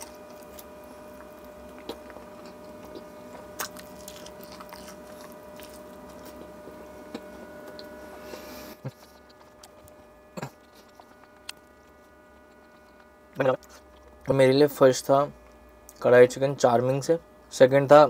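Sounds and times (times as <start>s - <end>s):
chewing food: 0.0s - 8.1s, 8.8s - 14.2s
steady electrical hum: 0.0s - 18.0s.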